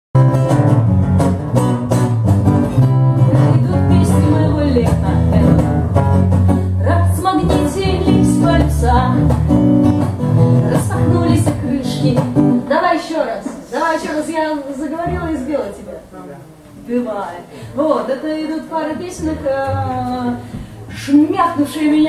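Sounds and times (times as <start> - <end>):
bass guitar low notes: 0.2 - 12.5
acoustic guitar strumming: 0.2 - 12.7.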